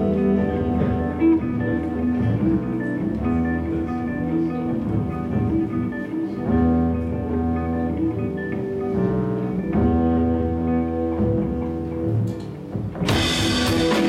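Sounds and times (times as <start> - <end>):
bass line: 0.0 - 14.0
electric guitars ringing chords: 0.0 - 14.0.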